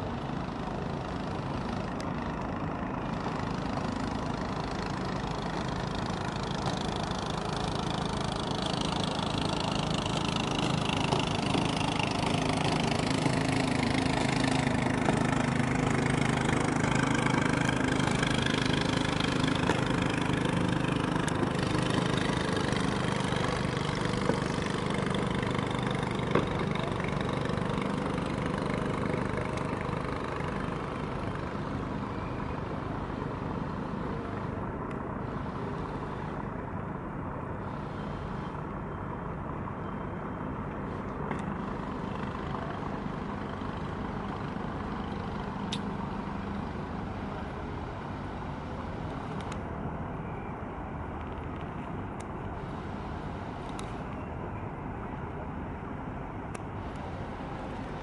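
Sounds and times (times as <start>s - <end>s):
boat engine running: 0.0s - 34.4s.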